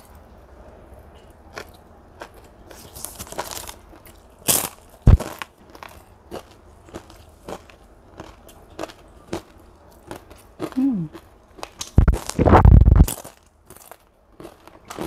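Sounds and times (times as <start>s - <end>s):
crunching and chewing cracker: 0.0s - 15.0s
person humming: 10.8s - 11.1s
loud muffled rumble: 12.0s - 13.1s.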